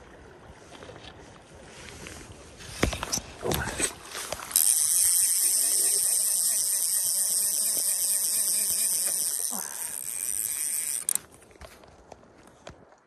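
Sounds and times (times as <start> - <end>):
fly reel clicking buzz: 4.5 - 11.3.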